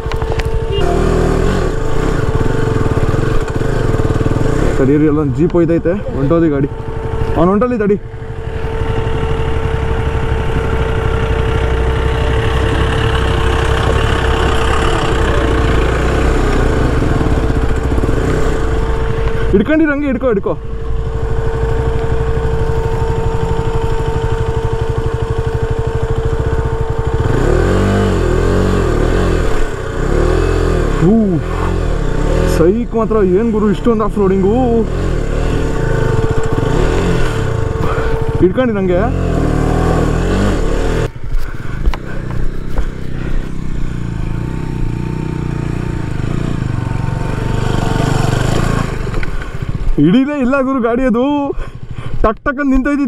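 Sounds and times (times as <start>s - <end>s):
motorcycle engine idling and revving: 0.0s - 53.0s.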